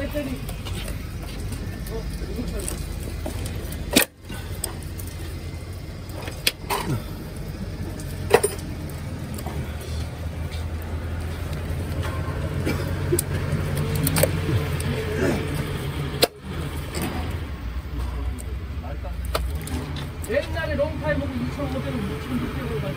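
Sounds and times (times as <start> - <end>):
steady low hum: 0.0 - 22.9
plastic connectors clicking: 13.1 - 17.4.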